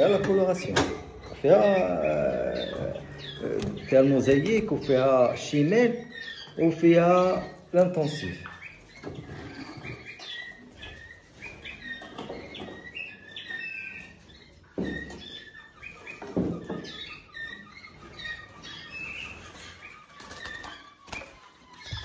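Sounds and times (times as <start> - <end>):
canaries chirping: 0.0 - 22.0
wings fluttering: 19.3 - 22.0.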